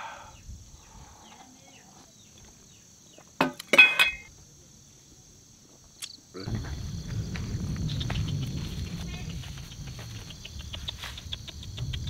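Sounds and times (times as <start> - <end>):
crickets chirring: 0.0 - 12.0
steady low noise: 6.4 - 12.0.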